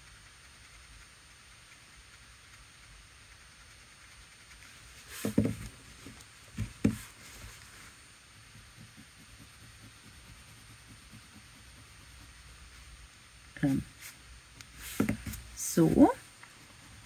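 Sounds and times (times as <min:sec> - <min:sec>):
crayon scratching on paper: 0:03.6 - 0:13.0, 0:13.8 - 0:17.0.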